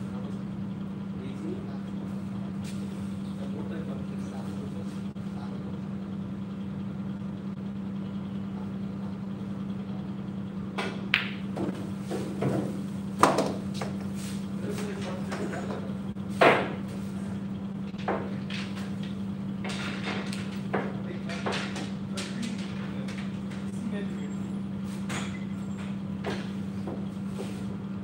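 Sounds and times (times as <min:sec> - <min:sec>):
pool balls clicking: 0:10.7 - 0:11.8, 0:17.8 - 0:23.7.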